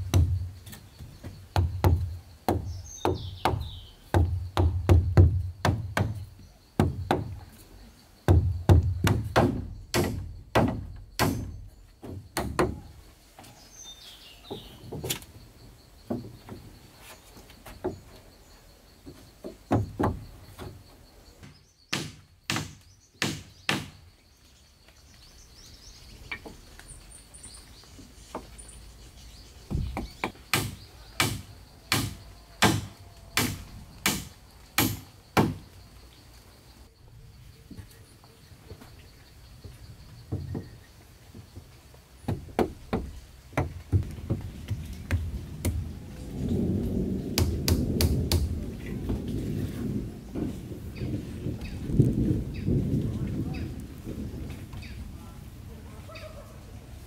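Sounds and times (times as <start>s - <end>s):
wood being chopped: 0.0s - 6.2s, 8.3s - 12.9s, 21.4s - 24.0s, 29.7s - 35.6s, 42.2s - 45.8s, 47.4s - 48.5s.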